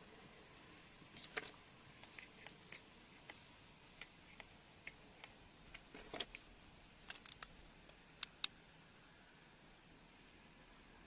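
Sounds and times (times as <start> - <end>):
stones clicking: 4.0 - 7.6.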